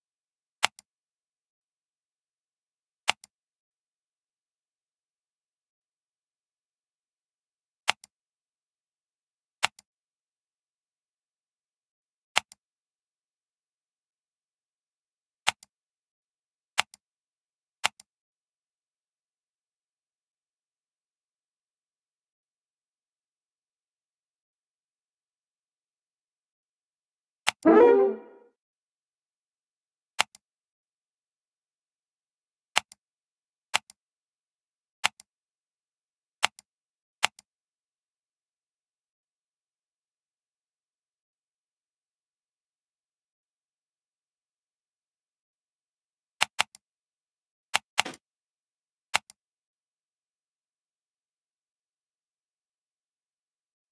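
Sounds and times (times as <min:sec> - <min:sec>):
computer mouse clicks: 0:00.6 - 0:00.9, 0:03.1 - 0:03.3, 0:07.9 - 0:08.1, 0:09.6 - 0:09.9, 0:12.4 - 0:12.6, 0:15.5 - 0:15.7, 0:17.8 - 0:18.1, 0:37.2 - 0:37.5, 0:47.8 - 0:48.2, 0:49.1 - 0:49.4.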